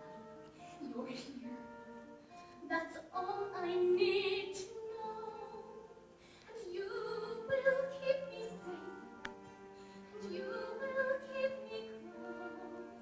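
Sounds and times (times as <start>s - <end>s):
orchestral accompaniment: 3.5s - 13.0s.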